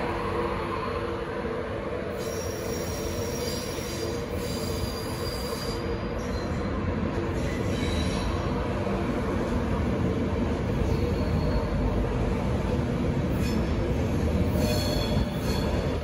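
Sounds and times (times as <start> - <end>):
train coaches rumbling past: 0.0 - 16.0
high-pitched wheel squeals: 2.2 - 6.7, 10.8 - 11.9.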